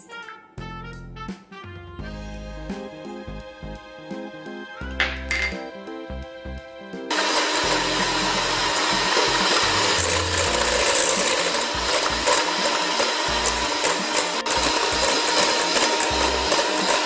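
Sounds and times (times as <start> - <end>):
hand mixer motor whine: 7.1 - 17.0
beaters rattling in metal bowl: 9.8 - 17.0.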